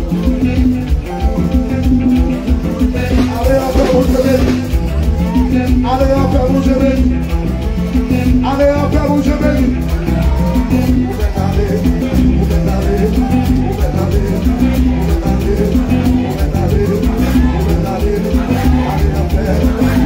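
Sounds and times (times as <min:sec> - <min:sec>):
upbeat music with bass beat: 0:00.0 - 0:20.0
person's voice: 0:01.6 - 0:07.4.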